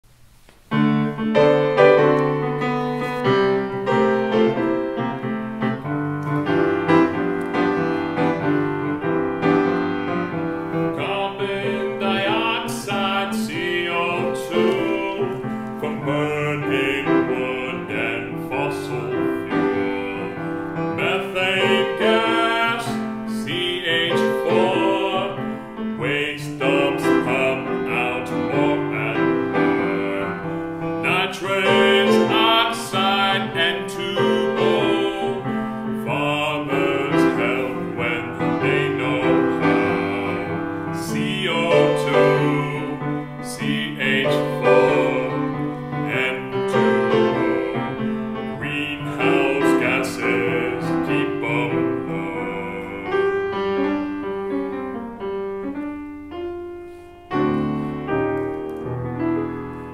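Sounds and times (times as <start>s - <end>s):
piano playing: 0.6s - 59.9s
voices singing: 10.9s - 53.4s.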